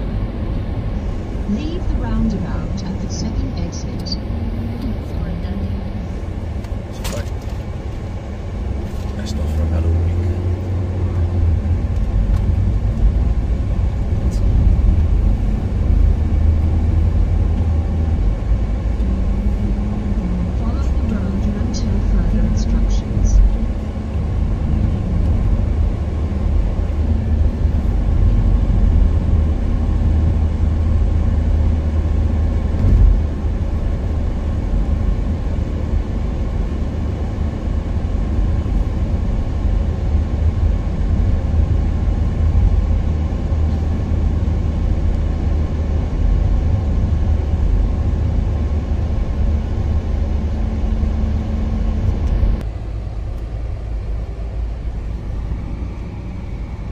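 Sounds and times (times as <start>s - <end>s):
car cabin road rumble: 0.0s - 56.9s.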